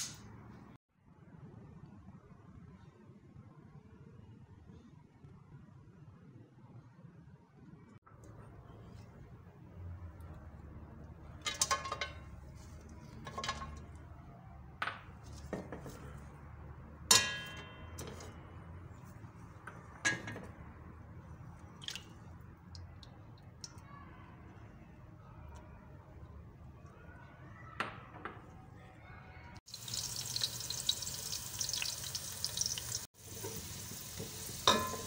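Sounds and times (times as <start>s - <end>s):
glass bowl knocking on metal pot: 34.6s - 35.0s.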